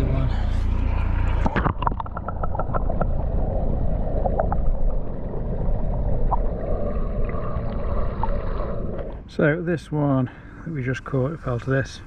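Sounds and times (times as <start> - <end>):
underwater low rumble: 0.0 - 9.3.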